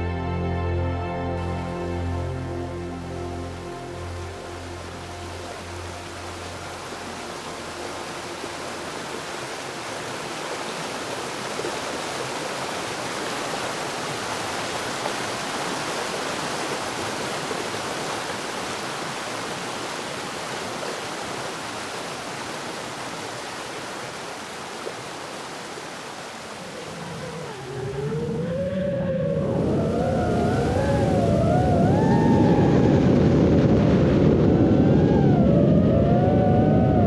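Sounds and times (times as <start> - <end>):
waterfall rushing: 1.2 - 33.4.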